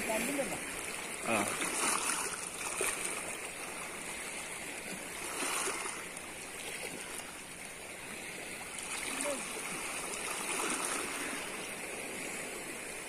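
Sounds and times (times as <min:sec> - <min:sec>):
small splashes: 0:00.0 - 0:03.9, 0:08.7 - 0:11.6
water lapping: 0:00.0 - 0:13.0.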